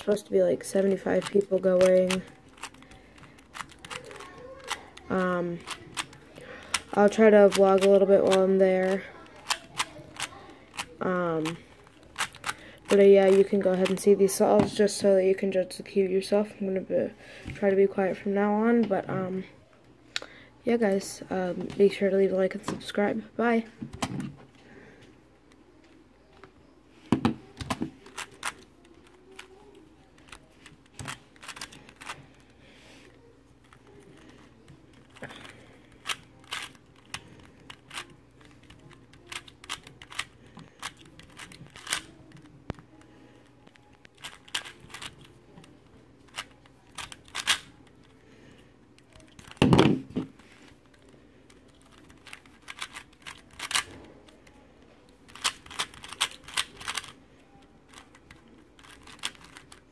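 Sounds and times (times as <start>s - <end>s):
plastic cube clicking and clacking: 0.0s - 14.1s, 27.4s - 32.4s, 33.8s - 43.0s, 44.1s - 45.7s, 46.3s - 47.8s, 50.9s - 54.6s, 55.3s - 57.2s, 57.9s - 59.9s.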